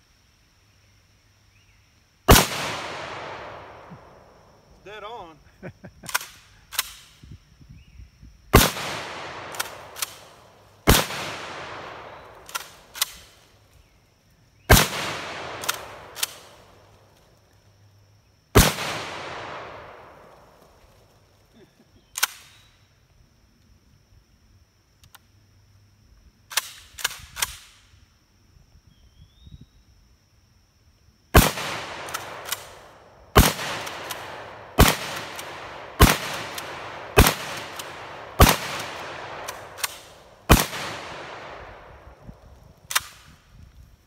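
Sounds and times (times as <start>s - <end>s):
shotgun shots: 2.3s - 4.3s, 8.5s - 13.4s, 14.7s - 16.8s, 18.6s - 20.5s, 31.4s - 42.2s.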